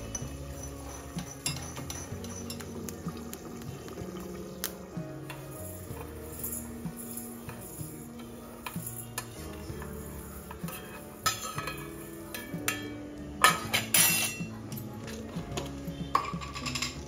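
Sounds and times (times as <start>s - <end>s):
spoon clinking on steel plate: 0.0s - 2.8s, 10.6s - 14.5s, 16.1s - 17.0s.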